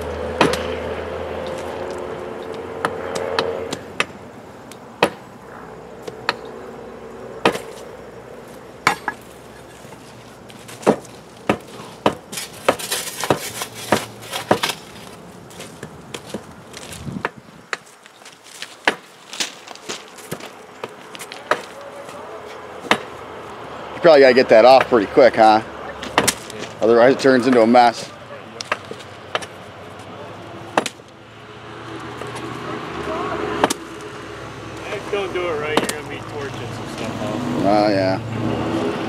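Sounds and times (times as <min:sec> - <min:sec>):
low hum: 0:00.0 - 0:10.0
hammer striking metal: 0:00.4 - 0:00.8.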